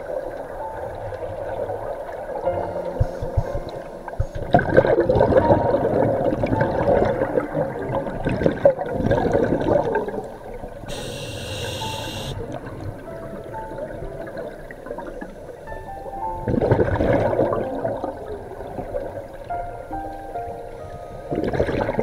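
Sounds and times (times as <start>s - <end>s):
exhaled bubbles gurgling: 1.4s - 12.8s, 16.5s - 19.4s, 21.3s - 22.0s
regulator inhalation hiss: 10.9s - 12.4s.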